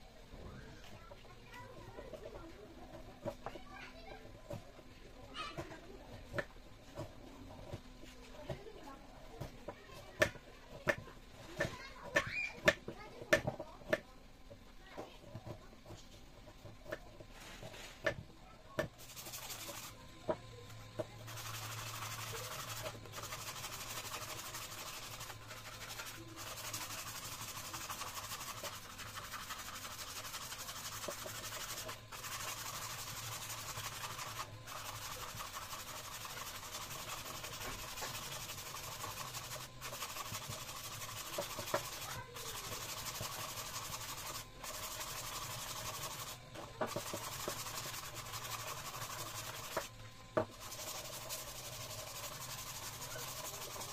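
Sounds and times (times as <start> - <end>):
knife whittling wood: 19.0 - 20.0, 21.2 - 53.9
sandpaper rubbing wood: 19.0 - 20.0, 21.3 - 49.9, 50.5 - 53.9.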